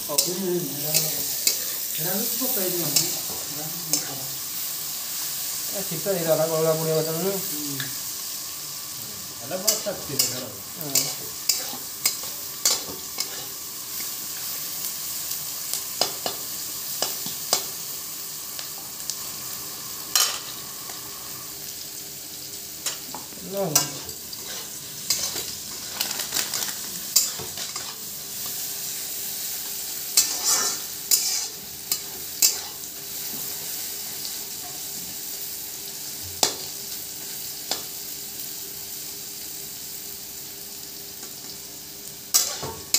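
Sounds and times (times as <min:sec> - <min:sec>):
vegetables sizzling in hot oil: 0:00.0 - 0:42.9
metal spatula scraping wok: 0:09.5 - 0:13.6, 0:23.7 - 0:28.0, 0:30.2 - 0:32.8, 0:42.3 - 0:42.9.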